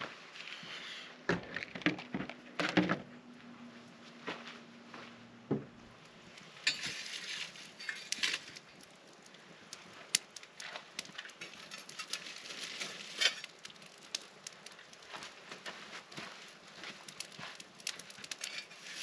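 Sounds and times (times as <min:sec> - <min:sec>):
campfire crackling and popping: 0:05.9 - 0:19.0
metal tool raking coals: 0:06.3 - 0:15.2, 0:16.9 - 0:19.0.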